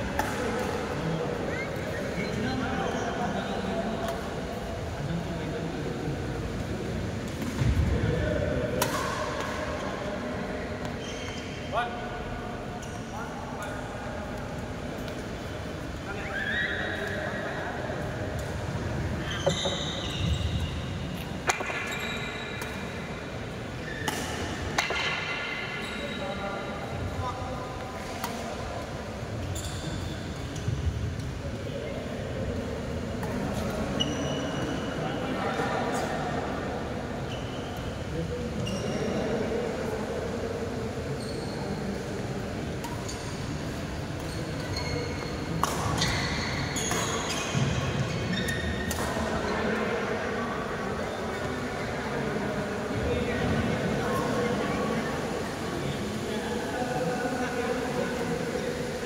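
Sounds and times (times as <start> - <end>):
reverberant hall noise: 0.0 - 59.0
racket hitting shuttlecock: 8.8 - 9.6, 24.0 - 25.5, 45.6 - 46.1
short high squeaks: 11.0 - 11.6
shuttlecock hits with rackets: 21.4 - 22.0, 24.0 - 25.3.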